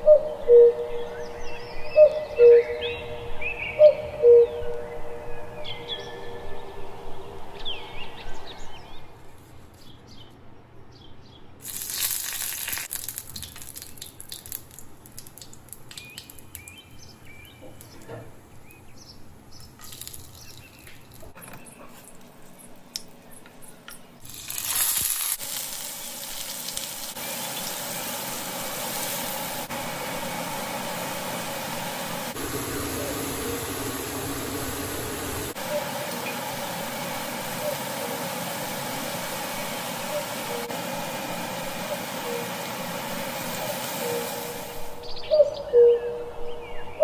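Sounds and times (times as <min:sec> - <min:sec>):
oil crackling and popping in pan: 0:11.6 - 0:17.0, 0:19.6 - 0:21.4, 0:24.2 - 0:29.4
onion sizzling: 0:11.6 - 0:17.0, 0:19.6 - 0:21.4, 0:24.2 - 0:45.0.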